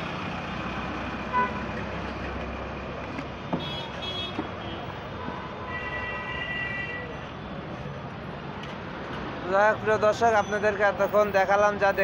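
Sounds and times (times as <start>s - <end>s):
bus driving past: 0.0s - 3.3s
street traffic: 0.0s - 12.0s
long steady horn: 1.3s - 1.7s.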